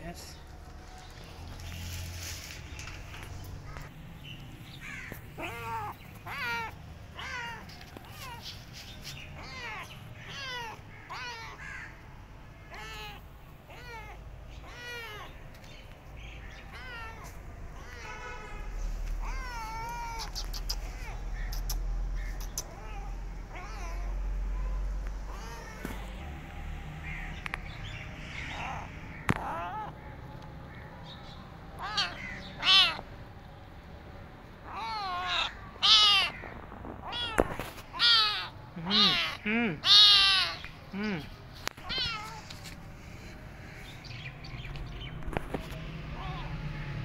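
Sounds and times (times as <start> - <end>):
kitten meowing: 5.4 - 8.6, 9.4 - 11.8, 12.7 - 15.4, 16.6 - 18.2, 19.2 - 24.2, 25.2 - 26.2, 28.6 - 30.0, 31.8 - 33.0, 34.6 - 42.6.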